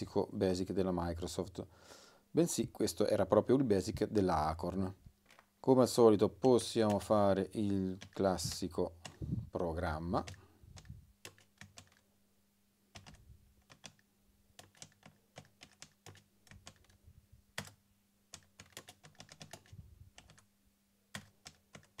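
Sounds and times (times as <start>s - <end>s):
keyboard typing clicks: 10.2s - 12.0s, 12.9s - 14.0s, 14.6s - 17.0s, 17.6s - 20.4s, 21.1s - 22.0s.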